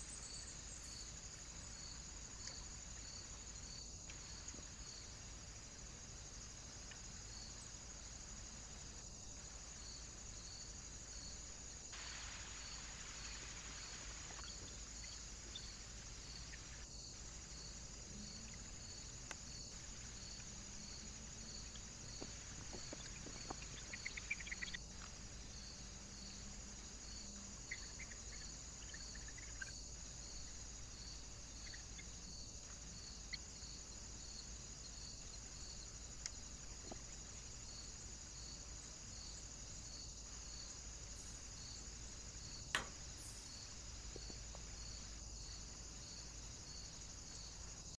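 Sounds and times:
crickets chirring: 0.0s - 48.0s
sharp click: 42.7s - 43.1s.

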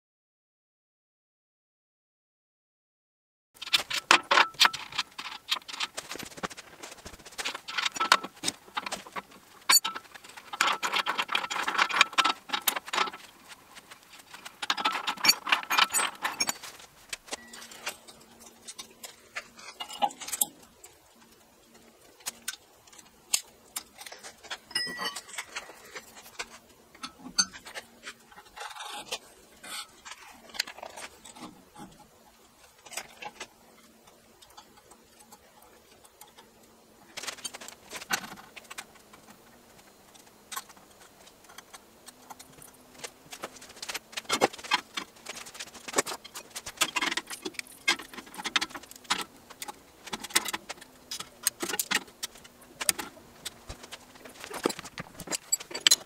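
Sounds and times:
faint steady hum: 3.6s - 56.0s
small steel parts clinking: 14.6s - 18.8s, 23.3s - 26.4s.

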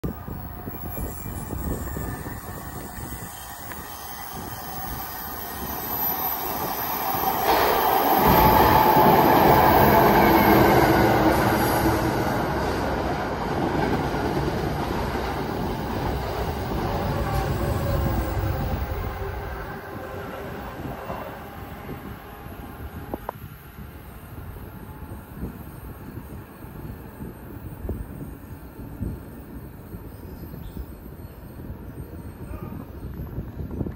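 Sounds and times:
high wheel squeal: 0.3s - 9.1s
train wheels running over rails: 2.5s - 19.8s.

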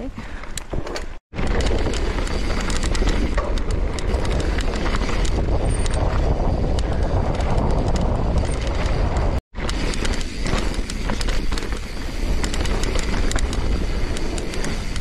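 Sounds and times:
bike clicks and rattles: 0.1s - 15.0s
tyres on loose dirt: 0.1s - 15.0s
wind rushing over microphone: 1.3s - 11.0s.

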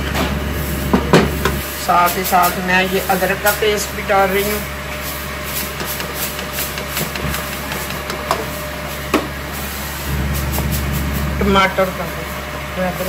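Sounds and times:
low mechanical hum: 0.0s - 13.0s
wooden spatula scraping metal pan: 4.4s - 9.1s
sharp knocks: 5.8s - 8.5s.

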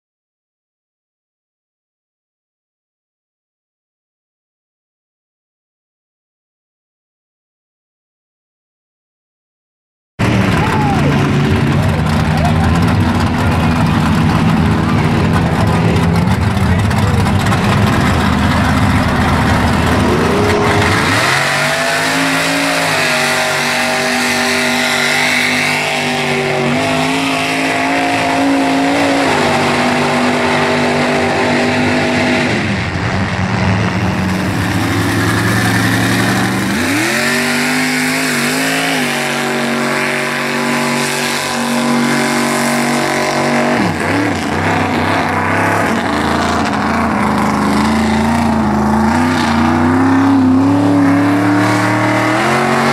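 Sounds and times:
engine revving hard: 10.2s - 52.9s.

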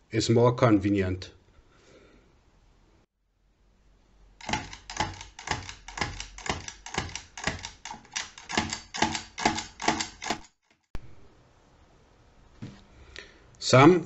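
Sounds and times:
mechanical calculator clacking: 4.4s - 10.8s.

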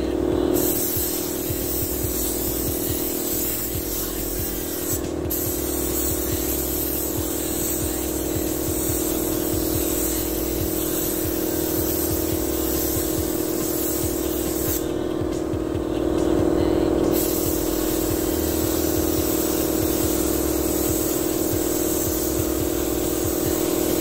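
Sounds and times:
paint spray gun hissing: 0.0s - 24.0s
steady low hum: 0.0s - 24.0s.

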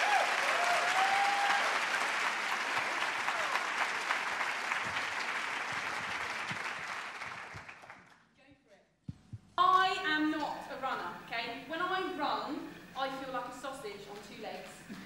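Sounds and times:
audience applauding and cheering: 0.0s - 8.2s.

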